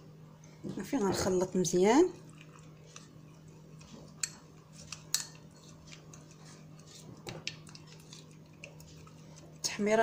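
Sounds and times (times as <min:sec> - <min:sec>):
spoon scraping ceramic bowl: 0:04.2 - 0:08.3.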